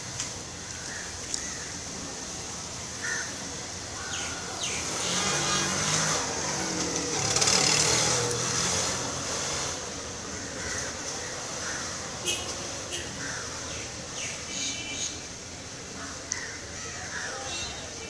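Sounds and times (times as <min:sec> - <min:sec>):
vehicle passing: 0:04.6 - 0:10.2.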